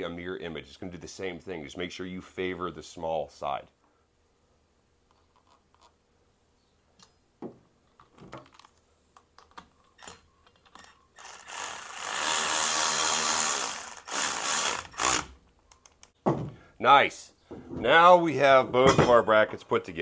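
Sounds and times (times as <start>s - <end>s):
electric ratchet motor whine: 11.2s - 15.4s.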